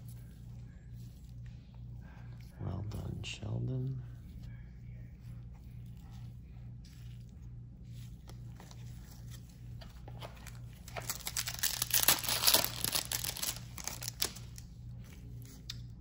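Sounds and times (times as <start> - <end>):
foil wrapper tearing and crinkling: 10.8 - 14.6.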